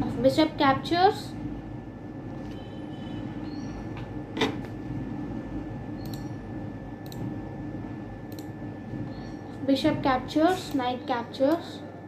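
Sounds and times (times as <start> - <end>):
steady low hum: 0.0 - 12.0
short clicks: 6.0 - 6.3.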